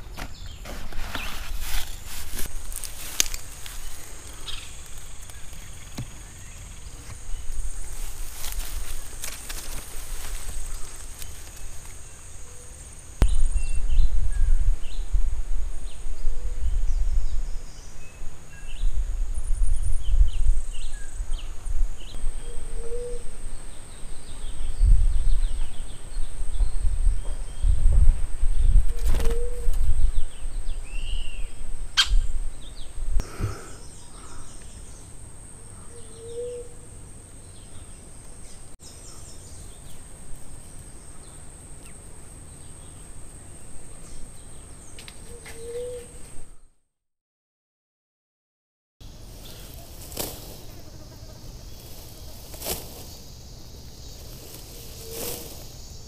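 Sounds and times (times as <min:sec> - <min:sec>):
birds chirping: 0:00.0 - 0:15.1, 0:28.5 - 0:46.7, 0:49.0 - 0:56.0
high insect whine: 0:02.4 - 0:13.7, 0:49.0 - 0:56.0
wind rumble on microphone: 0:13.2 - 0:33.5
low hooting bird call: 0:22.4 - 0:23.4, 0:35.6 - 0:37.0, 0:45.3 - 0:46.6.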